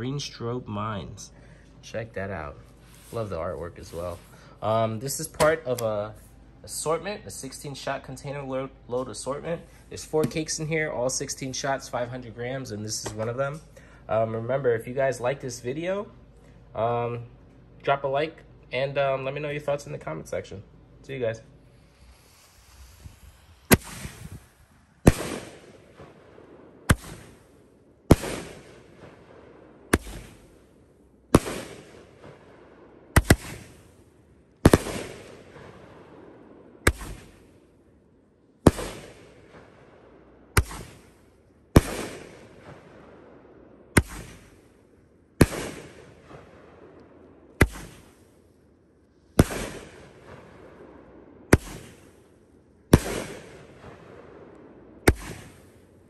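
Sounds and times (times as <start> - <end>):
firework cake bangs: 23.7 - 27.4, 28.1 - 29.2, 29.9 - 30.5, 31.4 - 32.5, 33.2 - 33.8, 34.7 - 35.8, 36.9 - 37.4, 38.7 - 39.7, 40.6 - 41.1, 41.8 - 43.0, 44.0 - 44.6, 45.4 - 46.5, 47.6 - 48.2, 49.4 - 50.6, 51.5 - 52.1, 52.9 - 54.2, 55.0 - 55.7.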